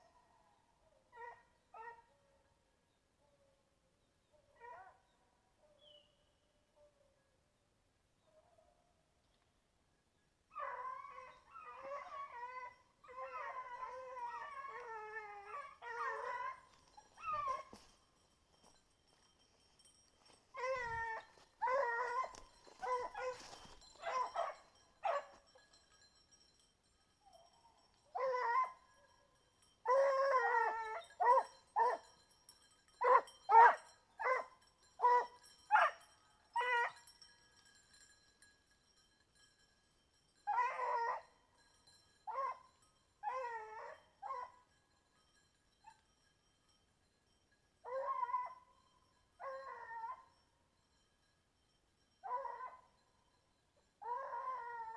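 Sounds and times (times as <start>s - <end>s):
hound baying and howling: 0.0s - 2.5s, 10.5s - 18.0s, 20.2s - 25.5s, 27.2s - 29.2s, 29.8s - 32.2s, 33.0s - 37.2s, 40.4s - 41.4s, 42.2s - 44.7s, 47.8s - 50.5s, 52.2s - 53.0s, 54.0s - 54.9s.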